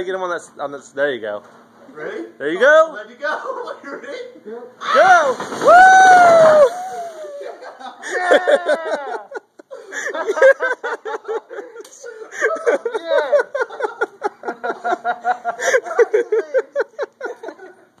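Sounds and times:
people laughing: 0:06.7 - 0:18.0.

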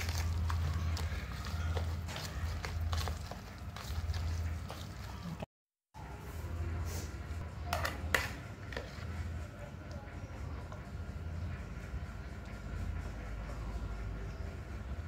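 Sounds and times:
steady low hum: 0:06.0 - 0:15.0.

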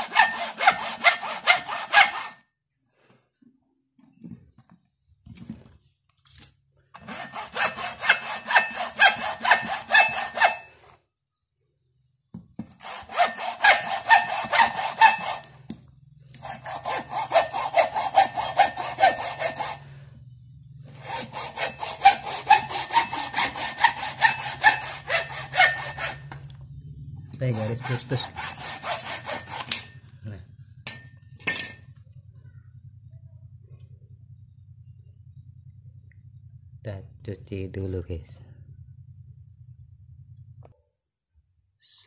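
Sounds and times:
hacksaw cutting plastic: 0:00.0 - 0:02.4, 0:07.0 - 0:10.8, 0:12.6 - 0:19.9, 0:20.9 - 0:26.4, 0:27.4 - 0:30.0.

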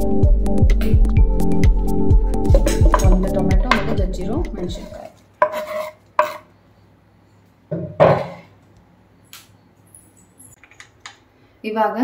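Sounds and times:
knife and board knocking on pot: 0:02.5 - 0:04.0, 0:05.4 - 0:06.4, 0:07.7 - 0:08.4.

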